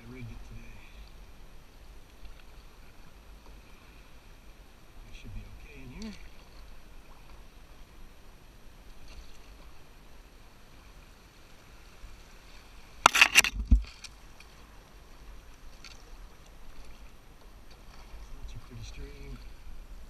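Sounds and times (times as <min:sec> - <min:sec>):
faint water around canoe: 0:00.0 - 0:20.0
brush scraping along canoe: 0:12.4 - 0:14.7.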